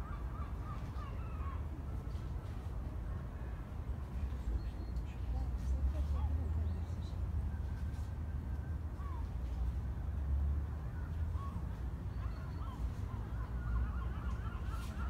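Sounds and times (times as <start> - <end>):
distant birds honking: 12.1 - 15.0.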